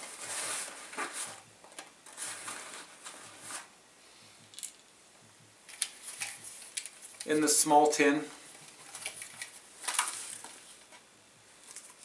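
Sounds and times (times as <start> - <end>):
metal tin rustling and scraping: 2.0 - 3.7.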